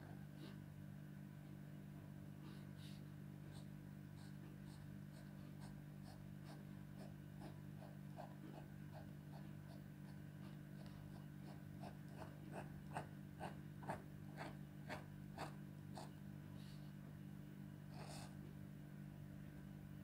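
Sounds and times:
steady low hum: 0:00.0 - 0:20.0
pen scratching on paper: 0:04.2 - 0:16.2, 0:17.9 - 0:18.4.

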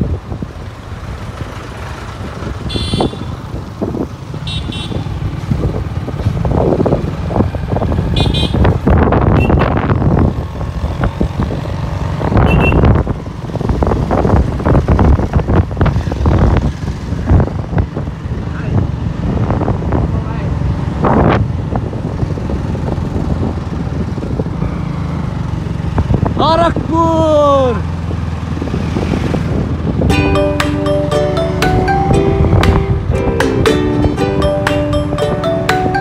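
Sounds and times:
wind buffeting microphone: 0:00.0 - 0:27.0, 0:27.9 - 0:30.2
motorcycle engine and road rumble: 0:00.0 - 0:36.0.

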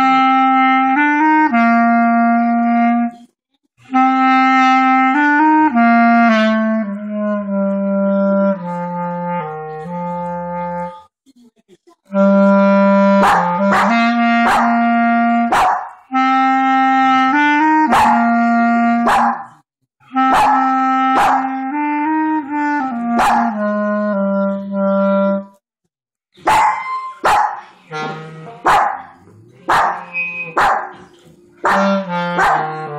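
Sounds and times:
clarinet playing held notes: 0:00.0 - 0:03.2, 0:03.8 - 0:11.1, 0:12.1 - 0:15.5, 0:16.1 - 0:19.1, 0:20.0 - 0:25.6, 0:27.8 - 0:28.6, 0:30.0 - 0:30.6, 0:31.5 - 0:32.9.

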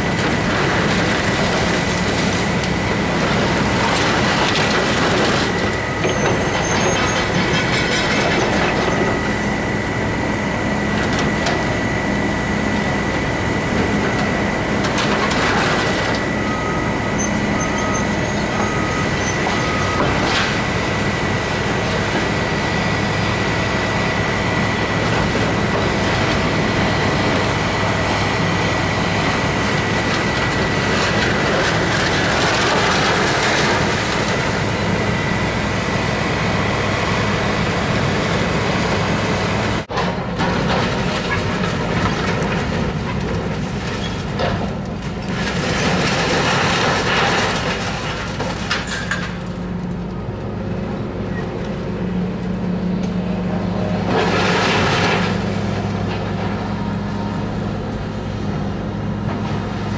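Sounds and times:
excavator engine and hydraulic drone: 0:00.0 - 0:59.9
debris crashing and rattling: 0:00.2 - 0:09.2, 0:24.2 - 0:34.8, 0:39.9 - 0:50.0.

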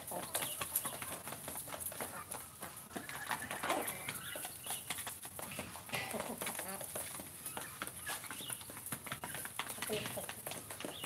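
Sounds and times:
beaks tapping on feed bowl: 0:00.0 - 0:11.0
chickens clucking: 0:00.0 - 0:11.0.

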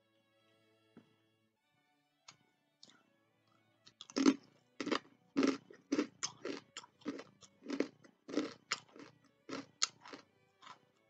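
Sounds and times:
crunching and chewing cracker: 0:03.8 - 0:11.0.

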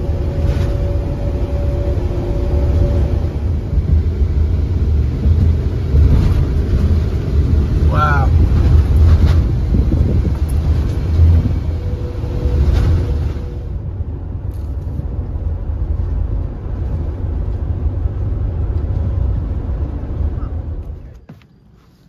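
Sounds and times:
engine and tyre drone: 0:00.0 - 0:21.5.

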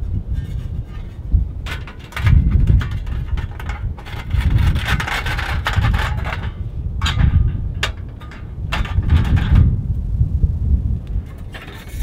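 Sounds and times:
metal panels scraping: 0:00.0 - 0:09.8, 0:11.2 - 0:12.0
low rumble of wind: 0:00.0 - 0:12.0.

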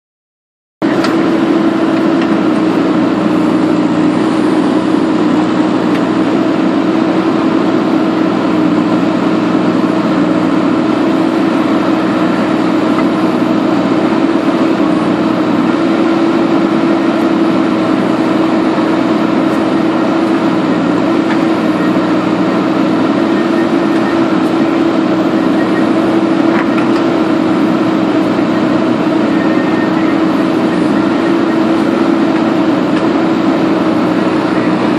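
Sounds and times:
backhoe diesel engine running: 0:00.8 - 0:34.9.

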